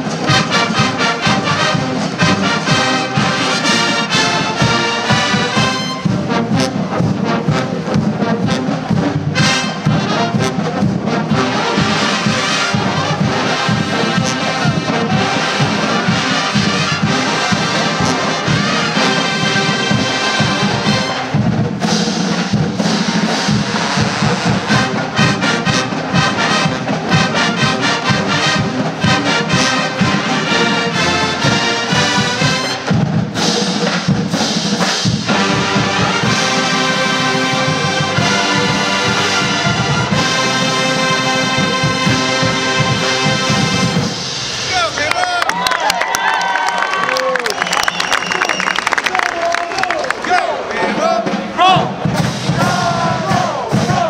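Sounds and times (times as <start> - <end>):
steady drum beat: 0.0 - 45.0, 50.8 - 54.0
marching band playing brass music: 0.0 - 45.2, 50.2 - 54.0.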